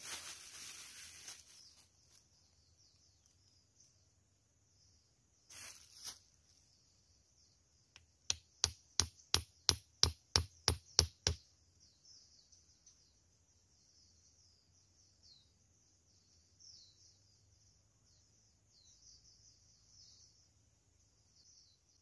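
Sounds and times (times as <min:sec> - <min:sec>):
knife knocking wooden stake: 0:08.0 - 0:11.4.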